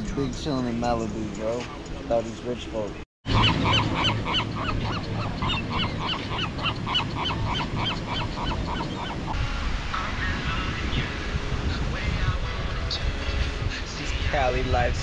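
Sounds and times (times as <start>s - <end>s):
gulls calling: 1.4s - 9.4s.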